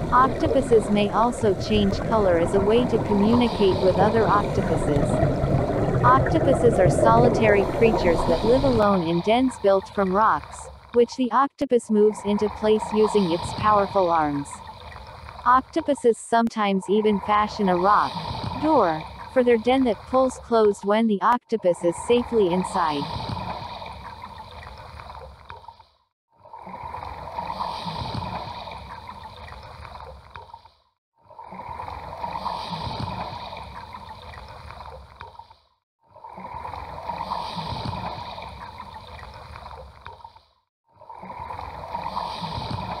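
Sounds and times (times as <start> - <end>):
bubbling gurgling water: 0.0 - 11.0, 12.2 - 16.0, 17.0 - 20.2, 26.4 - 30.6, 31.3 - 35.4, 36.2 - 40.3, 40.9 - 43.0.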